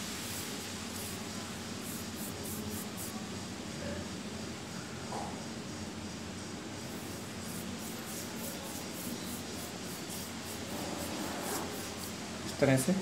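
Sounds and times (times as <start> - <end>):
steady hiss: 0.0 - 4.5, 5.8 - 13.0
paintbrush strokes on paper: 0.2 - 3.2, 6.9 - 12.2.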